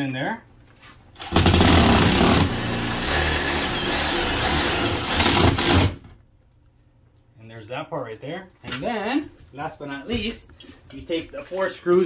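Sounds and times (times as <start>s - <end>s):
cordless drill running: 1.2s - 6.0s.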